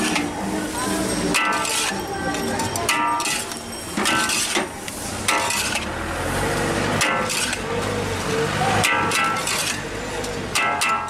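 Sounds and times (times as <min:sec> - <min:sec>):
spatulas scraping a steel wok: 0:00.0 - 0:11.0
ringing metal strikes: 0:01.1 - 0:04.6, 0:08.8 - 0:09.8, 0:10.5 - 0:11.0.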